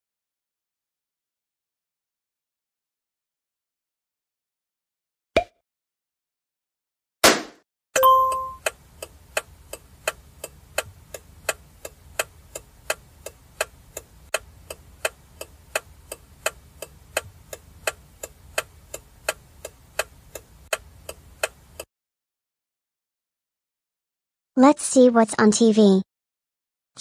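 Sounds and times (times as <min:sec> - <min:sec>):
microwave beep: 0:08.0 - 0:08.6
timer ticking: 0:08.0 - 0:21.9.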